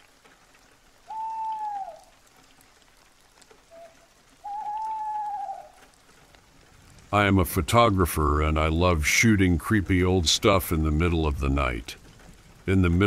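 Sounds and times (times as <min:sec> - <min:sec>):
faint steady rain: 0:00.0 - 0:13.0
long even calls: 0:01.0 - 0:02.2, 0:03.7 - 0:05.9.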